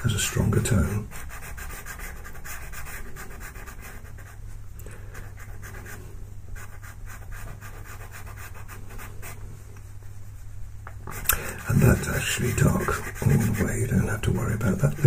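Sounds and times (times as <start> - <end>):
pencil scratching on paper: 0.1 - 4.4, 5.2 - 6.0, 6.6 - 9.4, 11.0 - 15.0.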